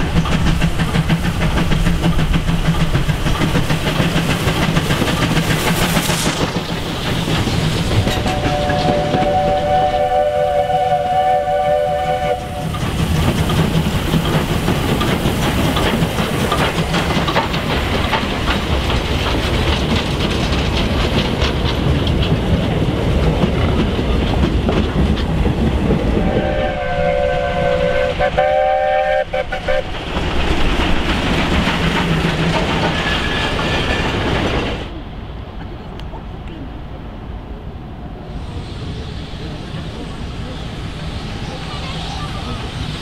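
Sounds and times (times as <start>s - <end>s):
train wagons rumbling past: 0.0s - 43.0s
steam locomotive whistle: 8.2s - 12.8s, 26.2s - 29.9s.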